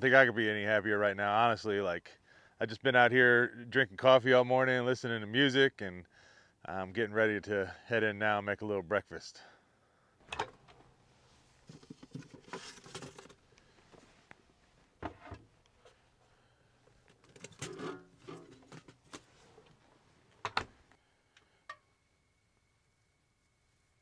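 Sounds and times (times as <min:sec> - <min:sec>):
objects knocking and clicking: 0:11.7 - 0:13.4.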